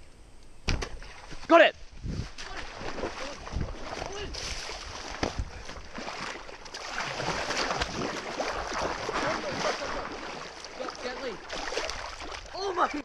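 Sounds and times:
water splashing and sloshing: 0:00.7 - 0:13.0
person wading through water: 0:02.1 - 0:13.0
fish thrashing at the surface: 0:02.4 - 0:12.6
water bubbling: 0:02.4 - 0:13.0.

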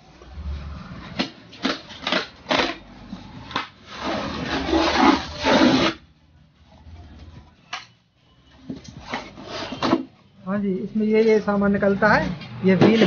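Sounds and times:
foam scraping and squeaking: 0:02.7 - 0:06.1, 0:08.8 - 0:10.1.

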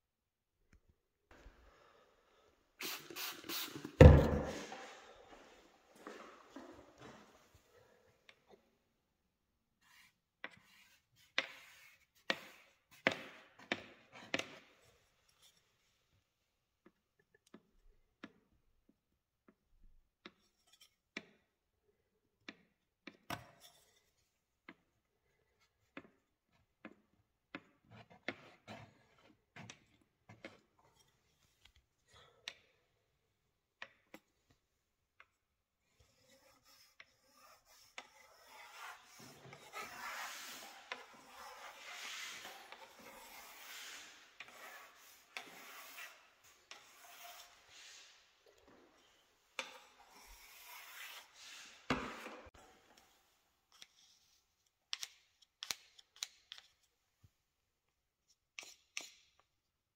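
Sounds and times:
wooden stick scraping sealant: 0:35.9 - 0:54.4.

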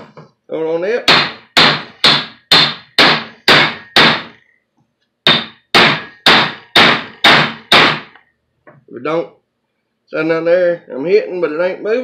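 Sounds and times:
hammer striking metal: 0:01.1 - 0:04.4, 0:05.3 - 0:08.2.

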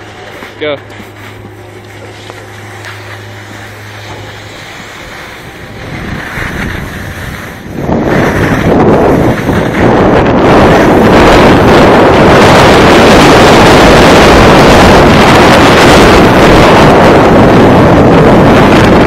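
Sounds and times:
skis hissing over snow: 0:00.0 - 0:10.9
wind buffeting microphone: 0:00.0 - 0:19.0.

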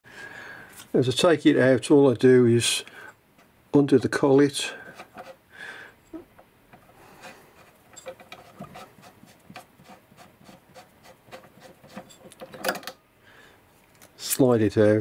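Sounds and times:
metal collet clicking and scraping: 0:06.8 - 0:13.0.

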